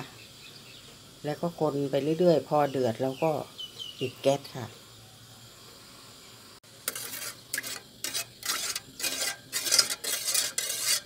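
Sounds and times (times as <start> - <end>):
spoon stirring and scraping metal pot: 6.7 - 11.0.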